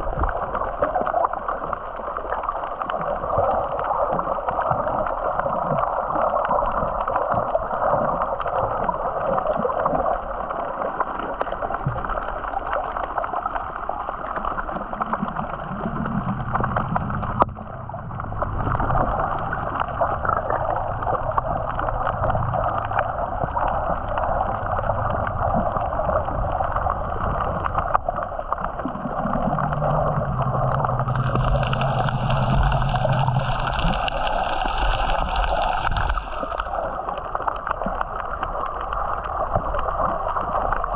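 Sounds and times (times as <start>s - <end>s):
water rushing against boat hull: 0.0s - 40.9s
low hum: 15.5s - 37.1s.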